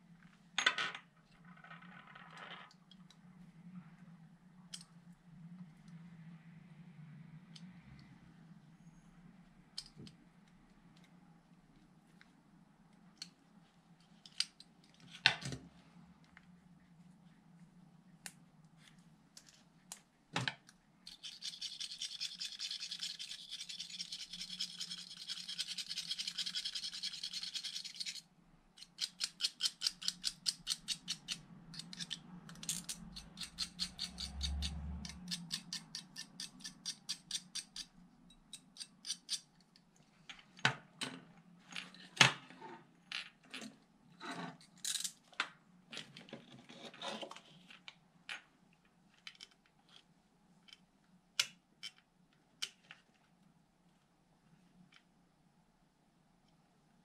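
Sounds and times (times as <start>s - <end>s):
scrubbing on metal contacts: 28.8s - 39.5s.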